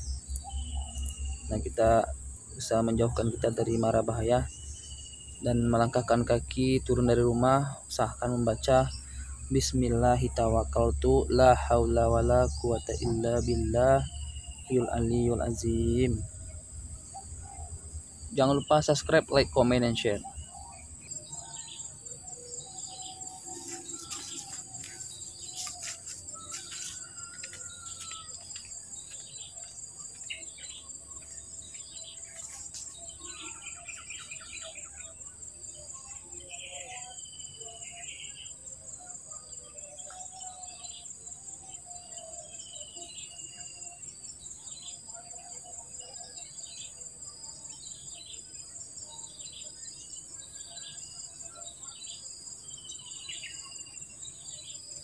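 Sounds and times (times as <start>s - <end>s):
birds chirping: 0.0s - 47.1s
insect chorus drone: 0.0s - 55.0s
sliding whistled bird calls: 22.6s - 28.4s.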